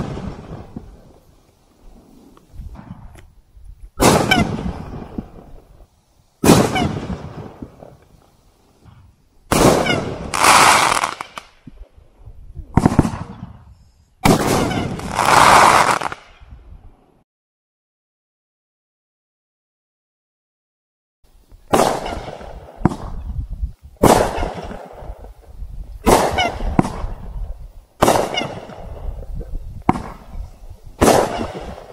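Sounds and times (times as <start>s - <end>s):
firework burst crackle tail: 0.0s - 12.0s, 12.7s - 16.6s, 21.6s - 31.9s
firework cake shots: 4.0s - 5.6s, 21.7s - 23.2s, 24.0s - 27.4s, 28.0s - 31.9s.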